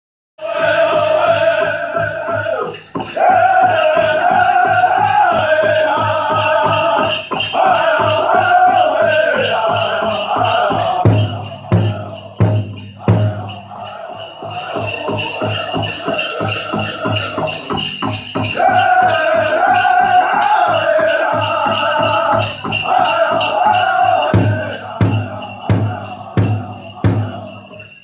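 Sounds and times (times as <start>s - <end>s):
bells jingling: 0.4s - 28.0s
drum group singing: 0.4s - 28.0s
big drum beating: 9.7s - 13.7s, 14.7s - 27.5s.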